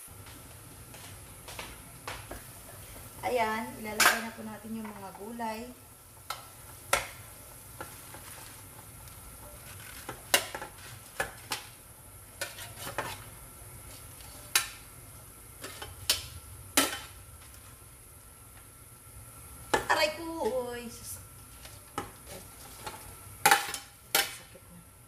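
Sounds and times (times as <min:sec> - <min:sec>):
soup boiling and bubbling: 0:00.0 - 0:03.6, 0:04.9 - 0:25.0.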